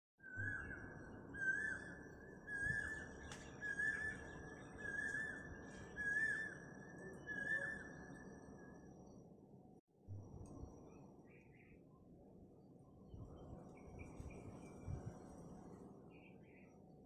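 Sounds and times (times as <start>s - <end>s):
high whistling tone with flourish: 0.2s - 8.3s.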